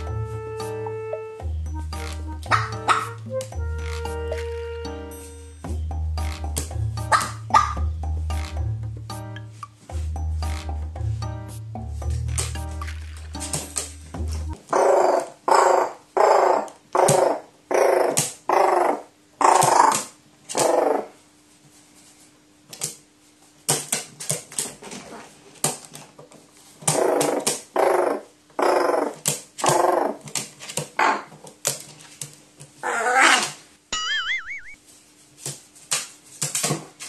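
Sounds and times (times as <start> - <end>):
wobbling electronic tone: 33.9 - 34.8.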